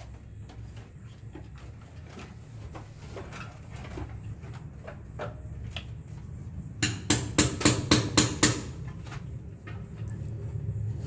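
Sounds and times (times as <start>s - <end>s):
sharp loud knocks: 6.8s - 8.8s.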